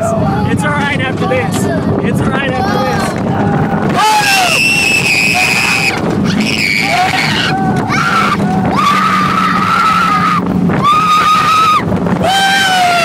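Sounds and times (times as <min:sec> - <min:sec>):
girl screaming: 0:06.4 - 0:13.0.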